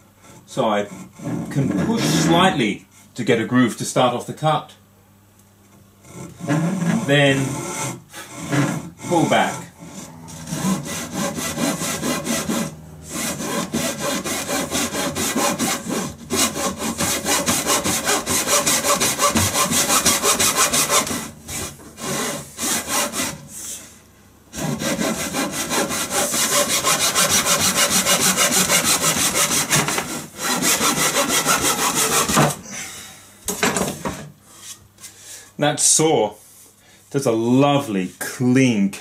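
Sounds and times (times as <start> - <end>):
pull saw cutting wood: 6.0 - 23.4, 24.5 - 32.6.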